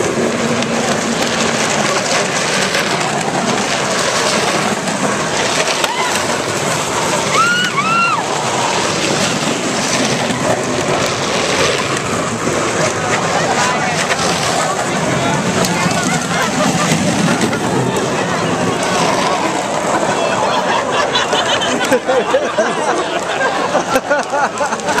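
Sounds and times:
crowd noise: 0:00.0 - 0:25.0
plastic wheels rumbling on asphalt: 0:00.0 - 0:25.0
high rising-and-falling calls: 0:05.8 - 0:09.4.

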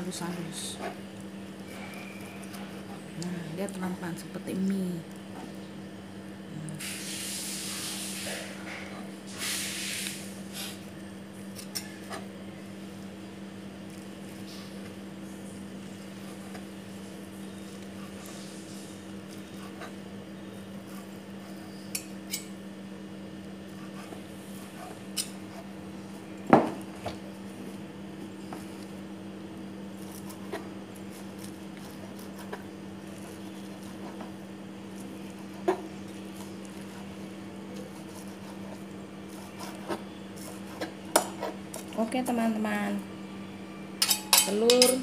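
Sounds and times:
steady low hum: 0:00.0 - 0:45.0
spoon clinking on metal: 0:44.0 - 0:45.0.

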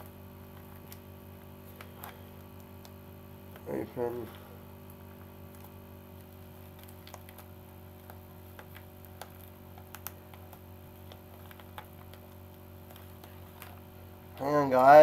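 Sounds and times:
packaging crinkling: 0:05.0 - 0:14.6.

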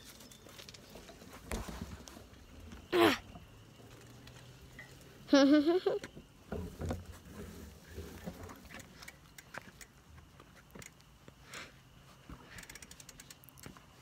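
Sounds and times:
bicycle clicking and rattling: 0:03.8 - 0:05.0, 0:08.2 - 0:11.0, 0:12.4 - 0:13.8.

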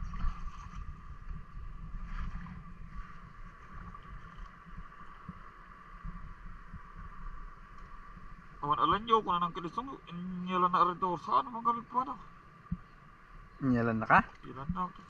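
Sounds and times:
shallow water sloshing: 0:00.0 - 0:09.9
wind rumbling on microphone: 0:00.0 - 0:10.3
faint high hum: 0:00.0 - 0:15.0.

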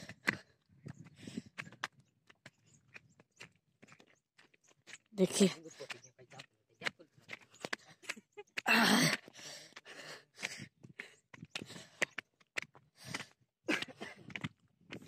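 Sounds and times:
person breathing out hard: 0:08.7 - 0:12.0.

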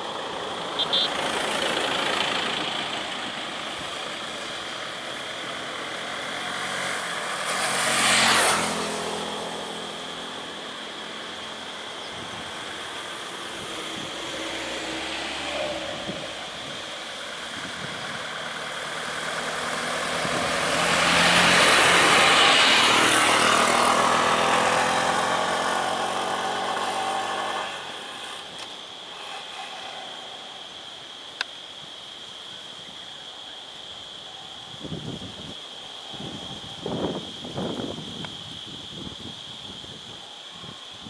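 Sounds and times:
vehicle engines idling: 0:00.0 - 0:06.5
vehicle passing close: 0:00.0 - 0:31.0.

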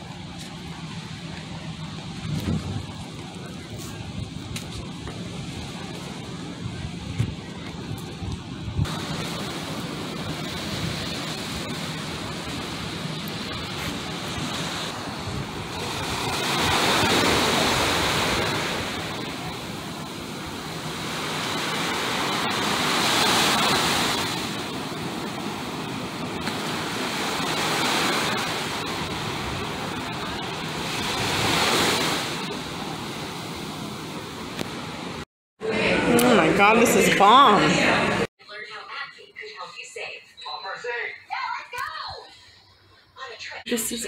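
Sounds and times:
small waves breaking on beach: 0:08.9 - 0:35.2.

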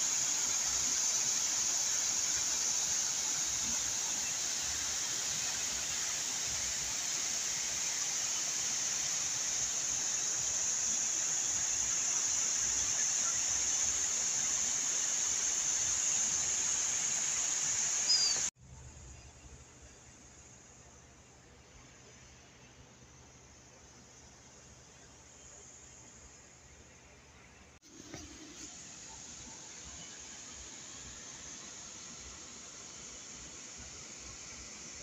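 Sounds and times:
even hiss: 0:00.0 - 0:18.5, 0:27.8 - 0:35.0.

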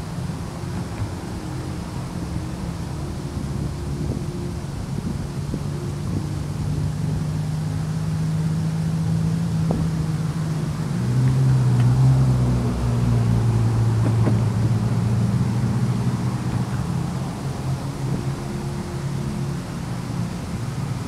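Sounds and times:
engine drone with hum: 0:00.0 - 0:21.0
second engine: 0:00.0 - 0:21.0.

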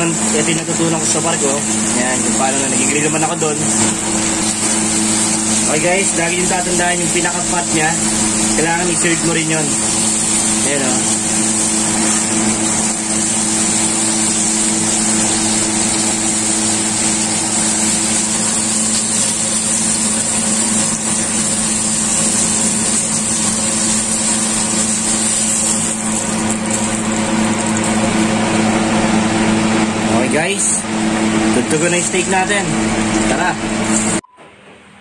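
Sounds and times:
steak sizzling in butter: 0:00.0 - 0:29.6
loud machine hum with tones: 0:00.0 - 0:35.0.

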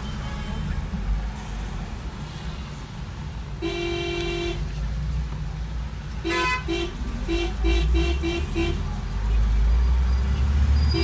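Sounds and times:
low rumble of engines: 0:00.0 - 0:11.0
car horns honking: 0:03.6 - 0:04.7, 0:06.2 - 0:08.9, 0:10.8 - 0:11.0.

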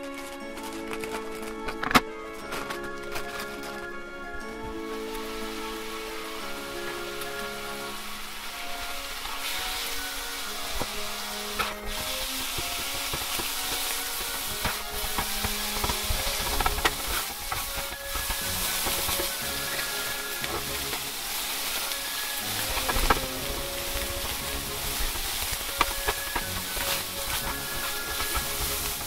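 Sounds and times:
background music: 0:00.0 - 0:29.0
chicken sizzling in fat: 0:05.0 - 0:29.0.

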